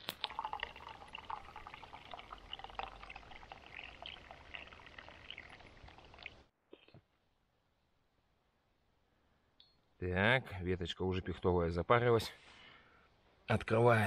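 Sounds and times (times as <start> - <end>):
tea pouring into cup: 0.0 - 6.4.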